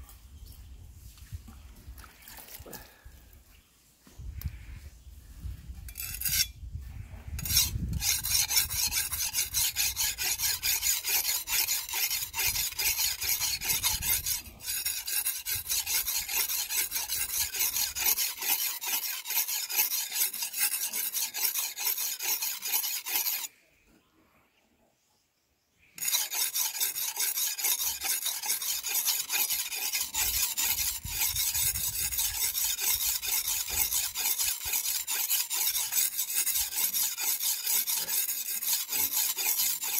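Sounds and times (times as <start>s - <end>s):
blade scraping on whetstone: 5.9s - 6.6s, 7.4s - 23.5s, 26.0s - 39.9s.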